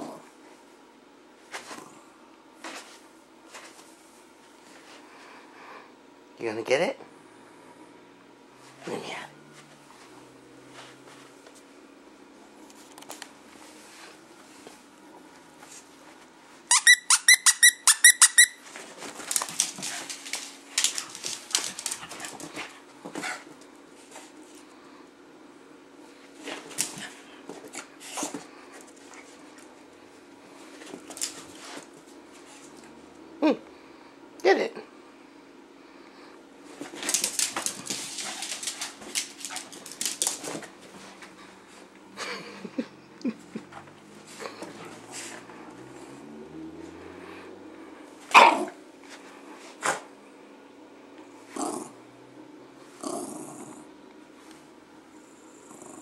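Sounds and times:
squeaky toy squeaking: 16.7 - 18.6
dog scuffling and clicking on floor: 18.5 - 24.6, 26.3 - 29.9, 30.5 - 32.9, 36.7 - 41.9.

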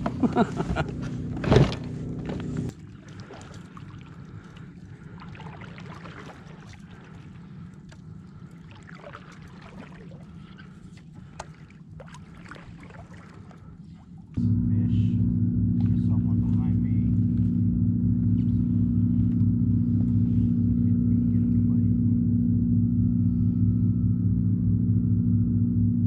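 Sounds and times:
water lapping: 0.0 - 14.4, 18.2 - 21.9
steady low hum: 0.0 - 26.0.

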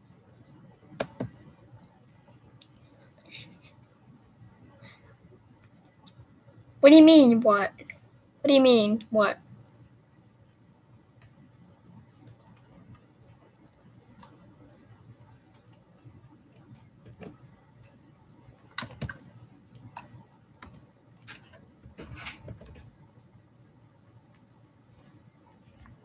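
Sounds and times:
computer keyboard typing: 1.0 - 1.3, 15.3 - 18.0, 18.6 - 22.9.

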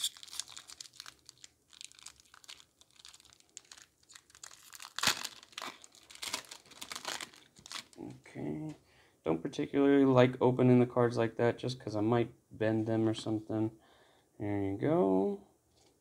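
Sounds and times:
foil wrapper crinkling and tearing: 0.0 - 8.0.

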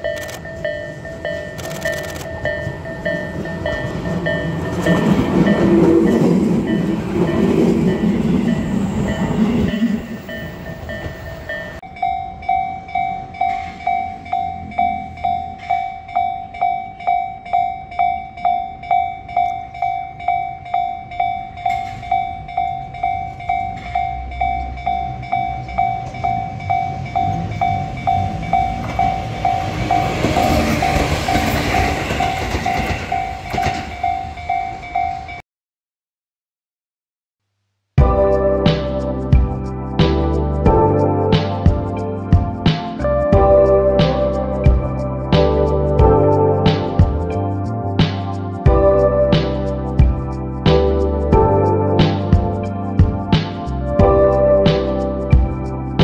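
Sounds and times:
electric train rumbling past: 0.0 - 35.4, 38.2 - 56.0
level-crossing warning bell: 0.0 - 35.4.

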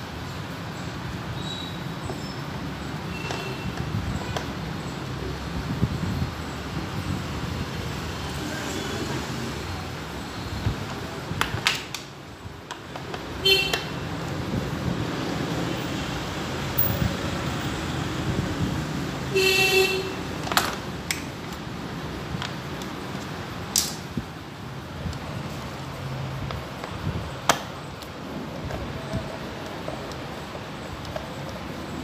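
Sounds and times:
street traffic noise: 0.0 - 32.0
vehicle horn beeping: 3.1 - 4.4, 13.4 - 14.1, 19.3 - 20.4.

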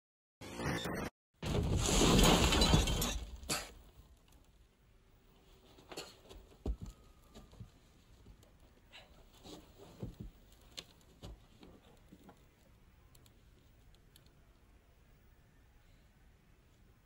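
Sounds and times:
knocks and scuffs: 9.3 - 12.3.

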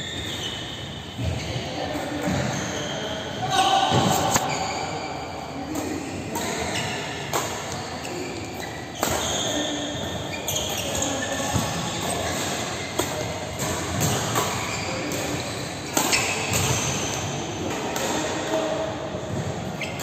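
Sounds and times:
shoes squeaking on court: 0.0 - 5.1, 5.7 - 17.4, 19.8 - 20.0
racket hitting shuttlecock: 5.7 - 18.6.

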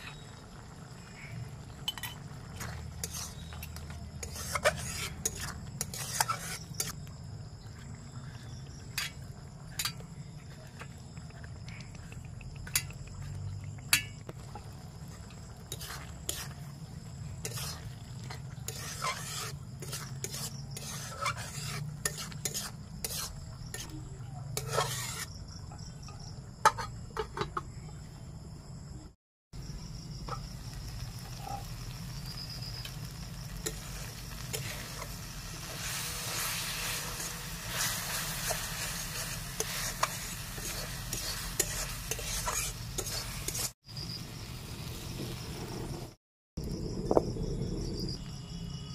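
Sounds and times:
metal spatula scraping pan: 1.9 - 7.0, 15.1 - 16.7, 17.4 - 23.9, 24.6 - 25.4, 33.6 - 43.8.

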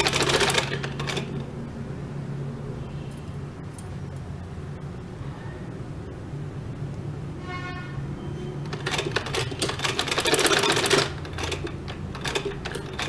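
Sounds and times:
sewing machine needle clicks: 8.7 - 13.0.

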